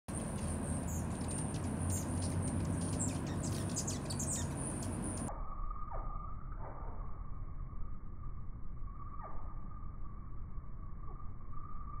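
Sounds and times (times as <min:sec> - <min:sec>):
hummingbirds chittering: 0:00.1 - 0:05.3
steady low hum: 0:00.1 - 0:12.0.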